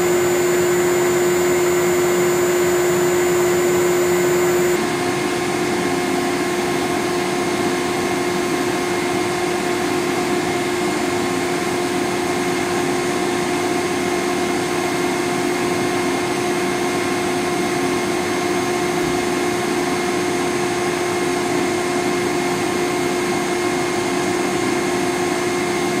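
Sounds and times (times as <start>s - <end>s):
servo motor whirring and whining: 0.0s - 4.8s.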